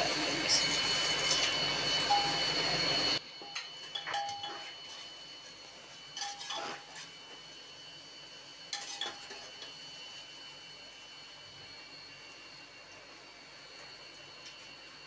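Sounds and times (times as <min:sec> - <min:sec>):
onions frying in oil: 0:02.8 - 0:15.0
spatula scraping metal pot: 0:06.2 - 0:07.1.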